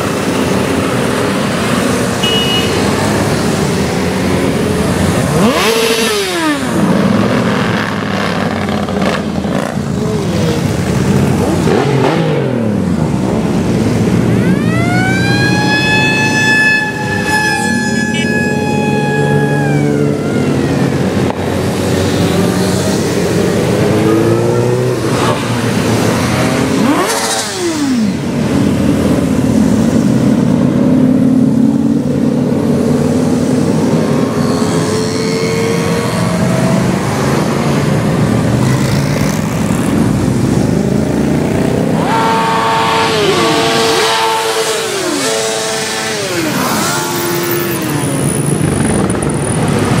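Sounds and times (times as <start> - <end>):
motorcycles revving past: 0.0 - 50.0
high siren-like tone: 14.3 - 21.2.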